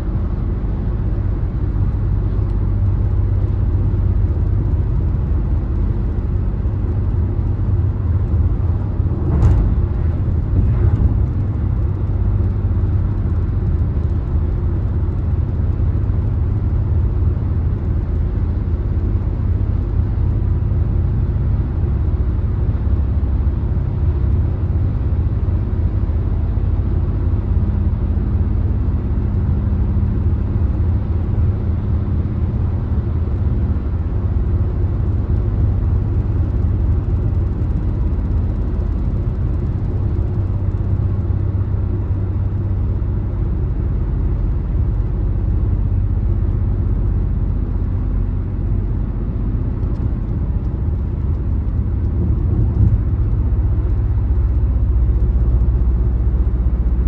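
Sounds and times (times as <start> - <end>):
road and tyre rumble: 0.0 - 57.0.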